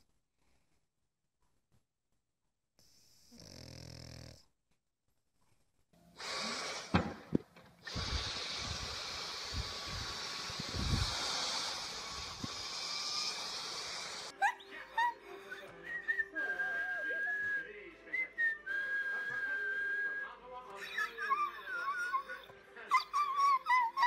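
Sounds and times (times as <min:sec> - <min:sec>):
vacuum cleaner hissing: 0:06.2 - 0:14.4.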